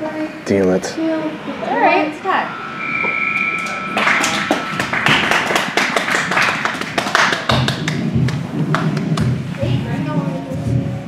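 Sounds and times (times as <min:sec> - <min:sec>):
spectators clapping: 0:04.0 - 0:09.4.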